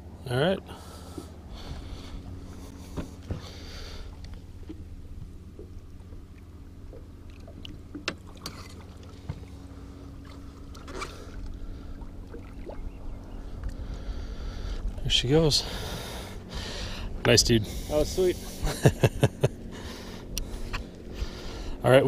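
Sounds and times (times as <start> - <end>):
boat motor humming: 0.0 - 22.0
small water splashes: 5.5 - 15.1.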